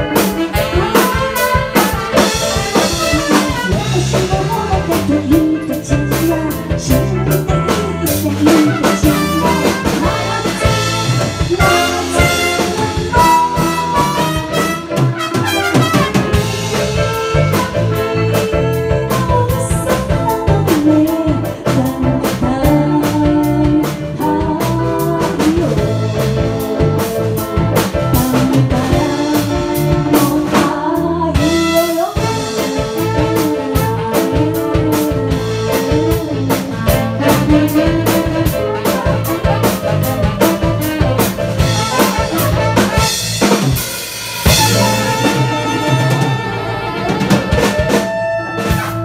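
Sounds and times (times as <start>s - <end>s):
drum kit beat: 0.0s - 49.0s
trumpet and saxophone melody: 0.0s - 49.0s
drum fill with cymbals: 36.9s - 49.0s.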